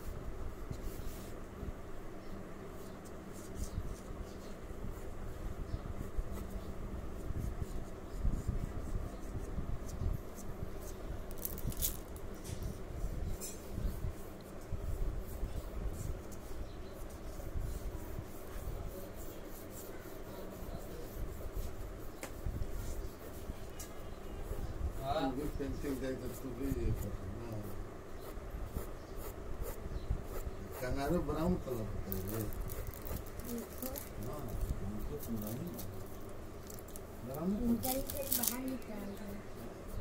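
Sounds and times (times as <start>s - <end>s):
hand rubbing on paper: 0.0s - 1.5s, 6.0s - 40.0s
pencil scratching on paper: 12.6s - 36.0s.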